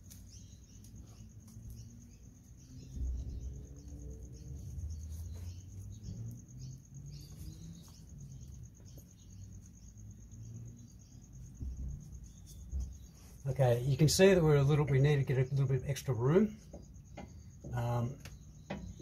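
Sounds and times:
crickets chirping: 0.0s - 19.0s
low rumble: 2.7s - 5.2s
faint knocks: 16.6s - 19.0s.

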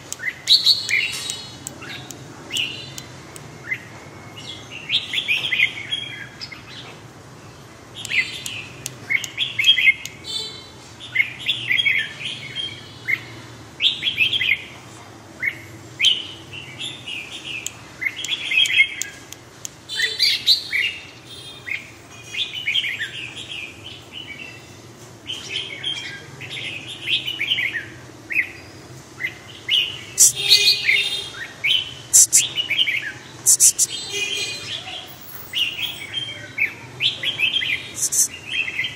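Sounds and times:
sharp bird clicks: 0.0s - 3.5s, 8.0s - 10.2s, 17.5s - 19.8s, 30.2s - 30.6s, 32.2s - 32.5s, 33.4s - 33.9s, 38.0s - 38.3s.

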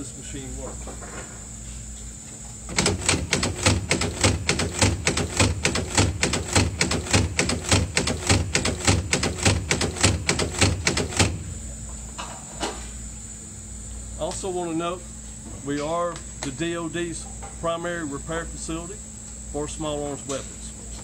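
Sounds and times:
fast metallic clacks: 2.7s - 11.4s.

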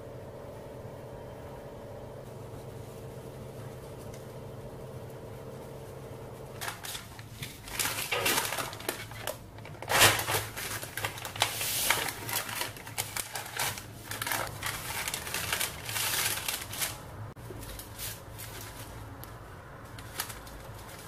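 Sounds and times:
low steady hum: 0.0s - 21.0s
paper and foil crinkling: 6.5s - 21.0s.

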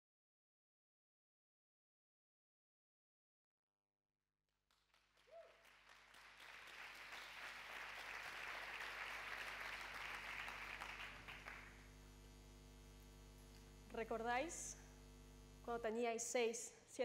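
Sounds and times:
audience applauding: 4.7s - 11.8s
electrical hum: 6.6s - 17.0s.

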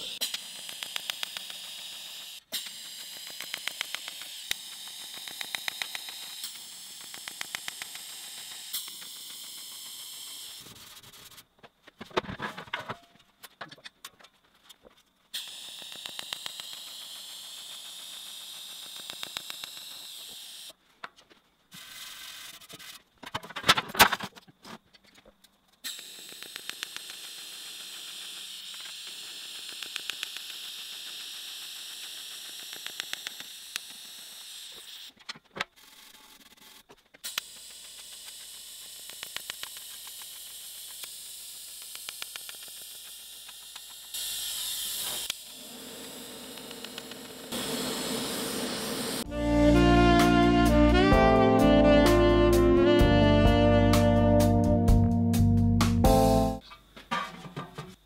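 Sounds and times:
pulsing welding arc hiss: 15.4s - 20.7s, 37.3s - 49.3s.

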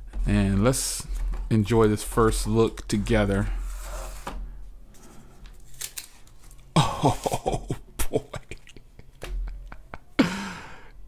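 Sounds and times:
plastic film crackling: 5.4s - 6.7s.

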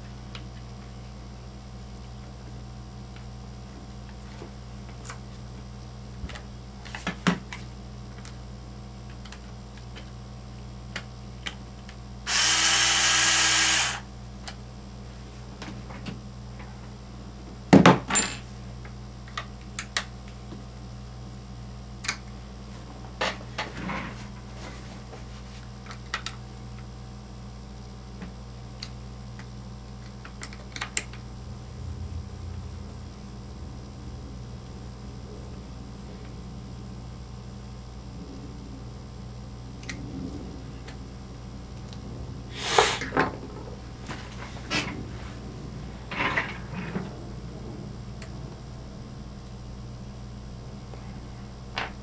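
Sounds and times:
power screwdriver running: 12.3s - 14.1s.

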